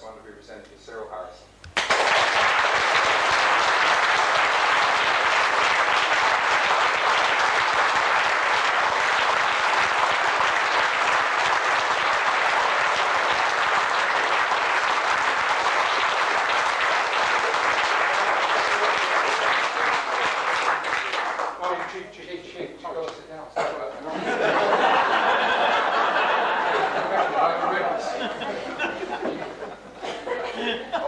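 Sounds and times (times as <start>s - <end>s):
crowd applauding: 1.8s - 22.0s, 24.2s - 29.9s.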